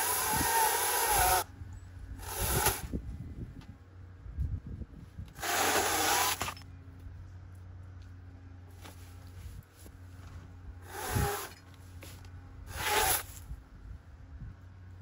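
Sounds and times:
saw cutting palm fronds: 0.0 - 1.5, 2.2 - 2.9, 5.4 - 6.6, 10.8 - 13.4.

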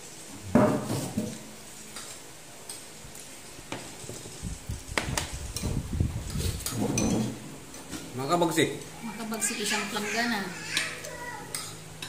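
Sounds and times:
spoons clinking on bowls: 10.7 - 12.0.

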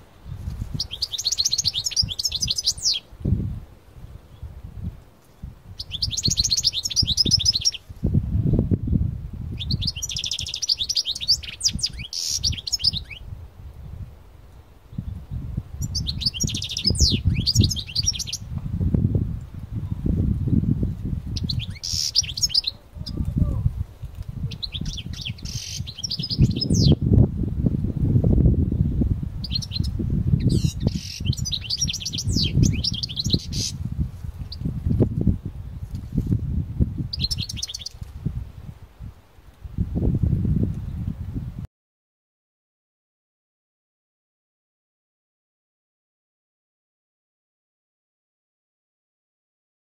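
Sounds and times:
wind on microphone: 0.0 - 41.7
goldfinch twittering song: 0.7 - 3.1, 5.8 - 7.9, 9.5 - 13.3, 14.9 - 18.5, 20.8 - 23.3, 24.5 - 27.0, 29.4 - 33.8, 37.1 - 38.1.

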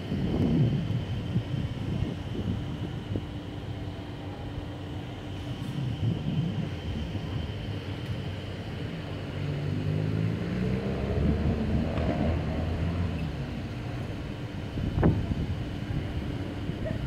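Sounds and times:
wind on microphone: 0.0 - 4.3, 5.3 - 8.4, 14.4 - 17.0
low outdoor rumble: 0.0 - 17.0.

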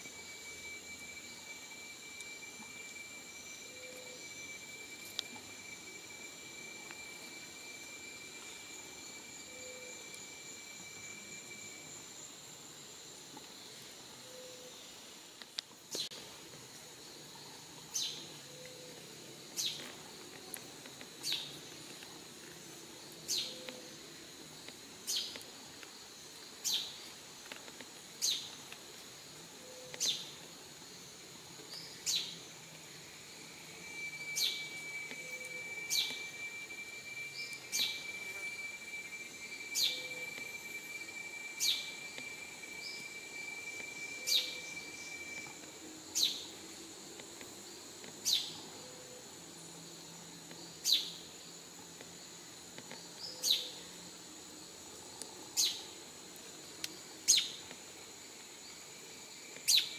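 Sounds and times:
steady high tone: 0.0 - 12.4, 33.3 - 45.7
high insect drone: 0.0 - 59.9.

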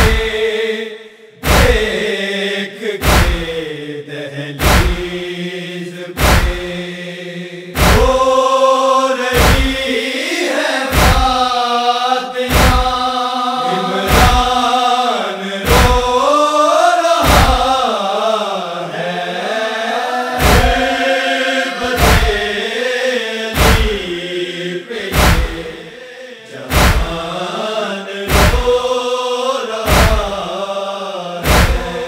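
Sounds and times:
deep rhythmic thump: 0.0 - 0.4, 1.4 - 2.1, 3.0 - 3.7, 4.6 - 5.2, 6.2 - 6.8, 7.8 - 8.3, 9.4 - 9.9, 10.9 - 11.5, 12.5 - 13.0, 14.1 - 14.6, 15.7 - 16.2, 17.2 - 17.8, 20.4 - 20.9, 21.9 - 22.6, 23.6 - 24.2, 25.1 - 25.9, 26.7 - 27.3, 28.3 - 28.9, 29.9 - 30.4, 31.4 - 32.0
men chanting in unison: 0.0 - 32.0.

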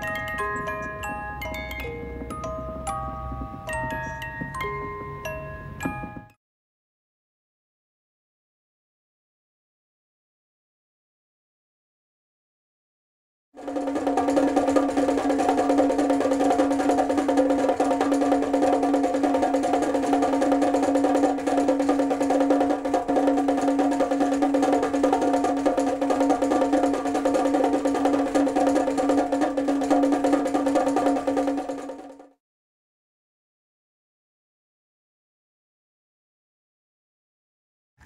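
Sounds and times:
small drum roll: 13.6 - 32.4.

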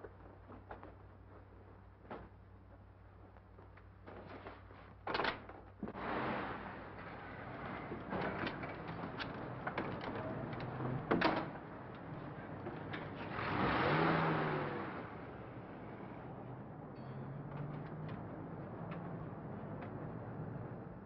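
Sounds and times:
car engine revving: 13.2 - 16.2.

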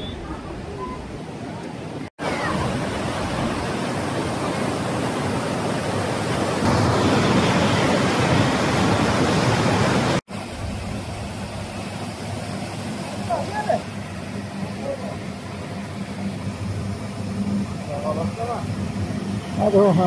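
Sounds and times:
river rushing over rocks: 1.8 - 13.9.

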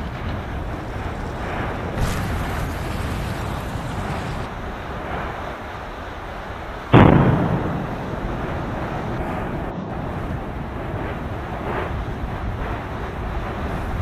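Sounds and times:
loud explosion: 0.0 - 4.6, 6.9 - 11.8
steam vent rushing: 0.0 - 6.0.

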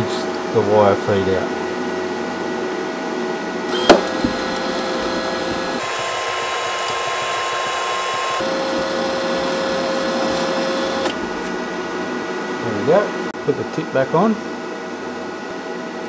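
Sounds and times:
wire-feed motor whining: 3.7 - 11.6.

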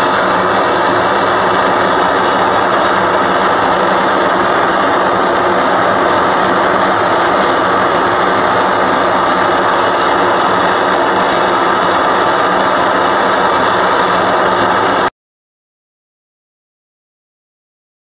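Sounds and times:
gas burner flame blowing: 0.0 - 15.1.

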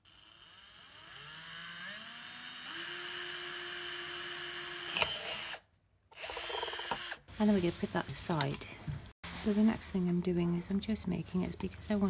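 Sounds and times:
cordless drill motor whine: 0.1 - 5.6, 6.2 - 7.2.

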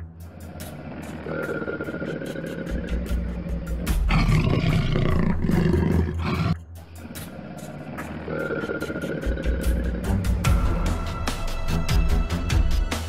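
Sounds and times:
background music: 0.0 - 13.0
loud rough animal roar: 0.5 - 6.6.

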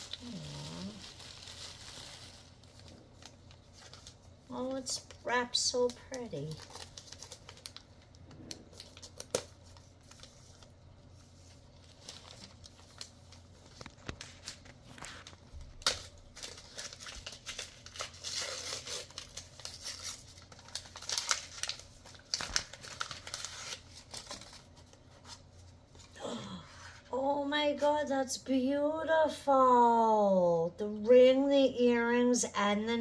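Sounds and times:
gift wrapping paper crinkling and tearing: 0.0 - 26.1.

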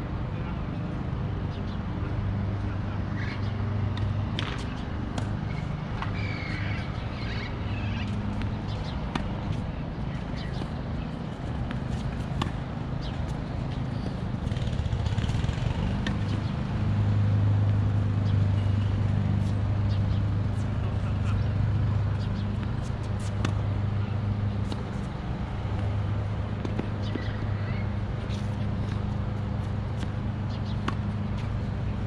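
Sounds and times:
rackets striking tennis balls: 3.9 - 7.4, 28.0 - 32.0.

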